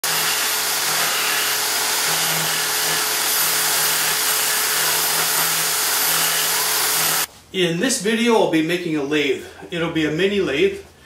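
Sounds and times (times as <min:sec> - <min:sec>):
power drill motor running: 0:00.0 - 0:07.3.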